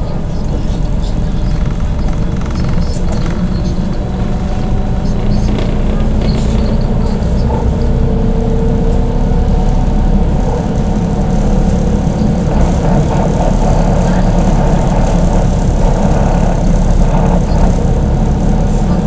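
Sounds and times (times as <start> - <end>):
trolleybus rumble inside cabin: 0.0 - 19.0.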